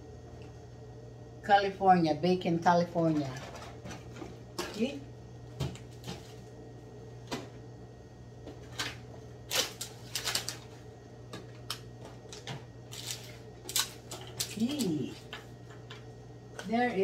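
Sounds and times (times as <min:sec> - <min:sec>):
plastic wrap rustling: 0:09.5 - 0:10.8, 0:12.4 - 0:15.3.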